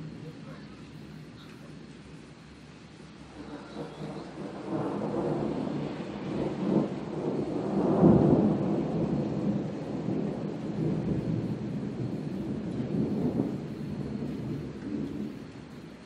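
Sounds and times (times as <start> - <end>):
rolling thunder: 0.0 - 16.0.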